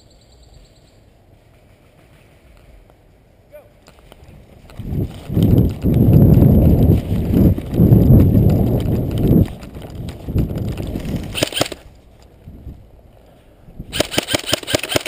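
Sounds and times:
buffeting rumble: 4.2s - 14.0s
clatter of sharp clicks: 14.0s - 15.0s.

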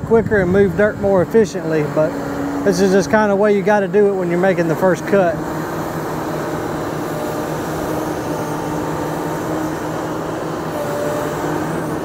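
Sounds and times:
diesel engines running: 0.0s - 12.0s
high-pitched whine: 0.0s - 12.0s.

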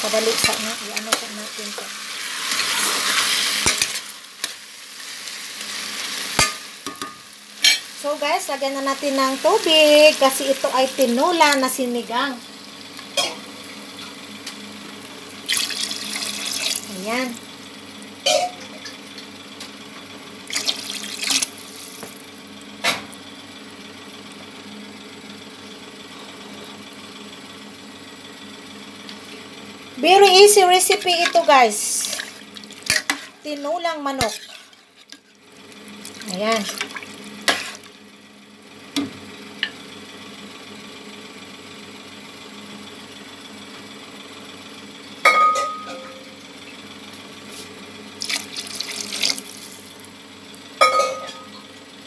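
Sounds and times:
steady low hum: 0.0s - 52.0s
water running from a tap: 15.4s - 17.4s, 20.5s - 22.2s, 48.2s - 50.0s.

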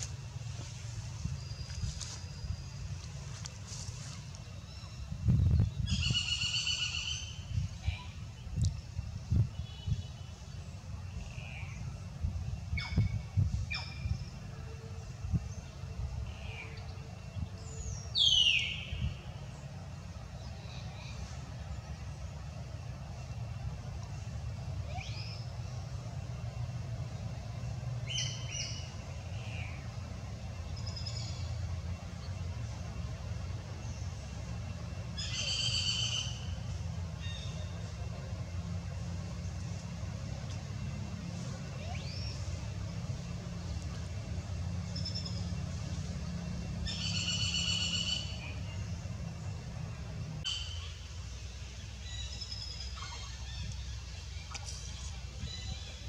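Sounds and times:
bird whistled chirps: 46.9s - 48.4s.

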